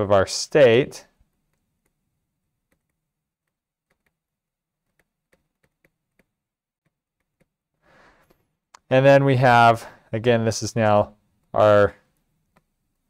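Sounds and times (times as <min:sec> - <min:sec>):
stylus tapping on tablet: 0:04.8 - 0:07.6.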